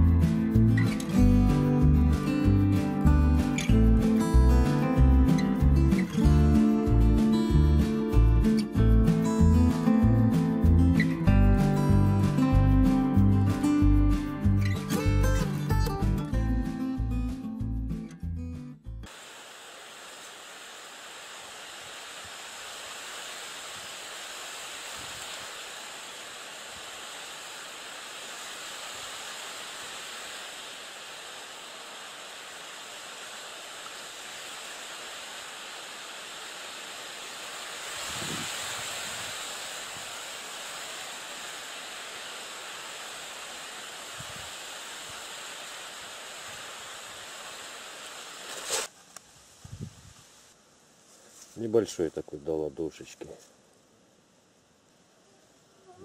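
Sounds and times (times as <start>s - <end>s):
wind through reeds: 19.1s - 56.0s.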